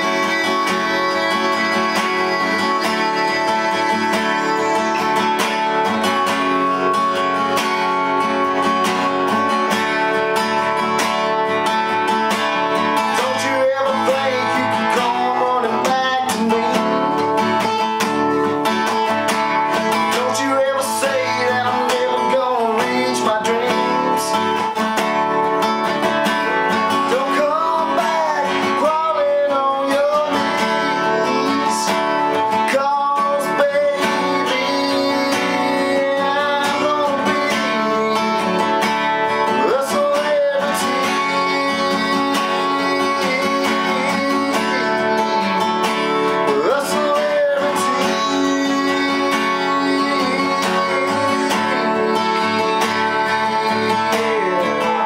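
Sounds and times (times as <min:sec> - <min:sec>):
acoustic guitar strumming: 0:00.0 - 0:55.0
man singing: 0:00.0 - 0:55.0.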